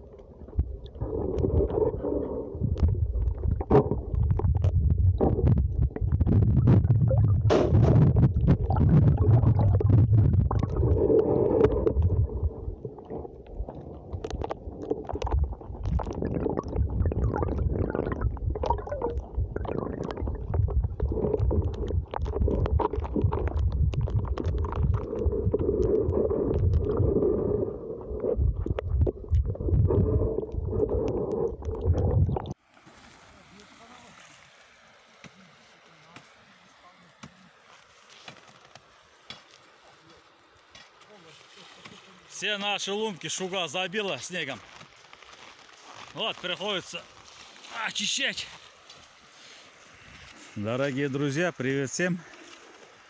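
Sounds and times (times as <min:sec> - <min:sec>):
muffled water sloshing: 0:00.0 - 0:33.5.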